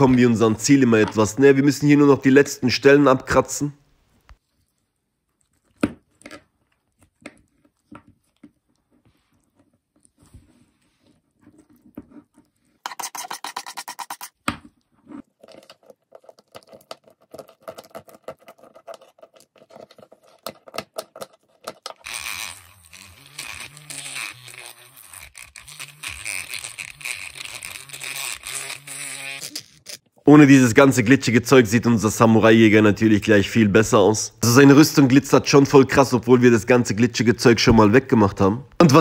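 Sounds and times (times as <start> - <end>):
slimy gel squelching and crackling: 14.8 - 22.2.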